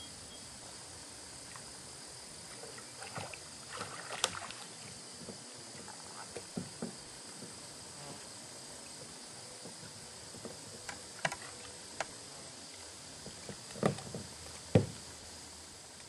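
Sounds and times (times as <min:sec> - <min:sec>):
water splashing lightly: 0:02.4 - 0:07.6
dull thumps: 0:13.2 - 0:15.0
knocks in plastic kayak: 0:13.3 - 0:15.0.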